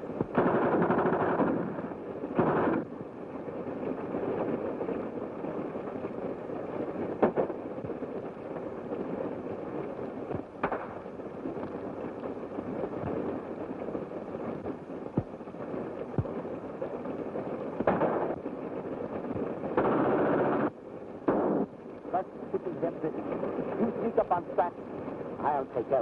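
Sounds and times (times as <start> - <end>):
old soundtrack hiss: 0.0 - 26.0
gunshots: 0.2 - 2.9, 7.2 - 7.6, 10.6 - 11.0, 17.8 - 18.4, 19.8 - 21.7
machine-gun fire bursts: 0.2 - 2.9, 7.2 - 7.6, 10.4 - 11.0, 17.8 - 18.4, 19.4 - 20.7, 21.3 - 21.7.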